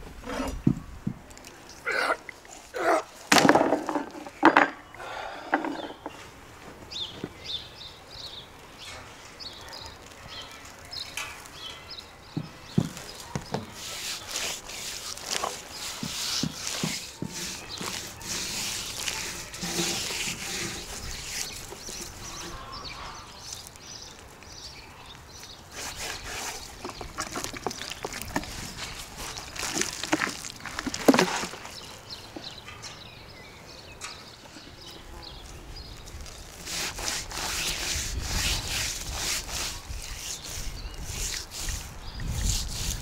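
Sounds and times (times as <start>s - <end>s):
hands rubbing salt into fish: 13.6s - 22.4s, 25.7s - 31.5s, 36.2s - 43.0s.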